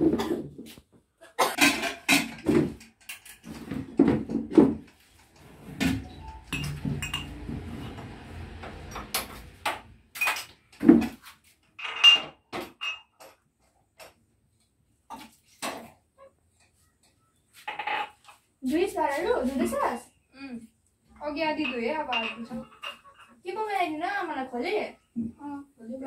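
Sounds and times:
dishes and pots clattering: 0:01.4 - 0:05.1, 0:05.7 - 0:08.2, 0:08.8 - 0:11.2, 0:11.8 - 0:14.2, 0:17.6 - 0:18.3, 0:21.6 - 0:23.4.

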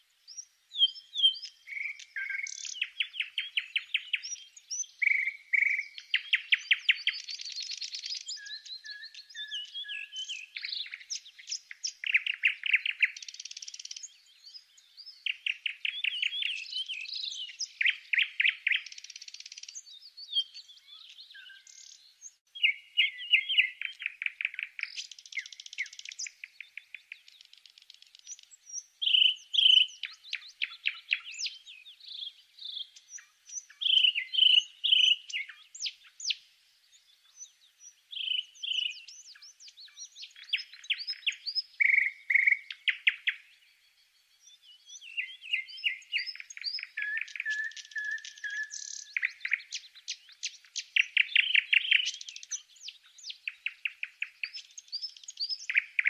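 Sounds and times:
songbird trilling and chirping: 0:00.0 - 0:56.0.

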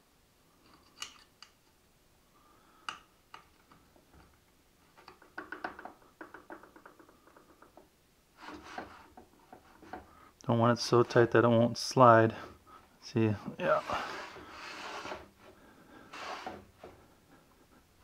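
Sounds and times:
short scrape: 0:13.6 - 0:15.3.

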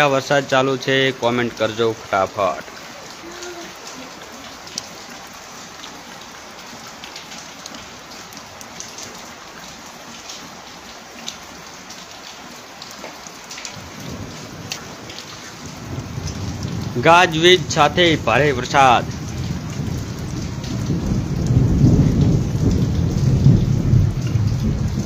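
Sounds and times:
steady rain falling: 0:00.0 - 0:25.0
rain drop ticks: 0:00.3 - 0:25.0
low rumble of thunder: 0:13.8 - 0:25.0.

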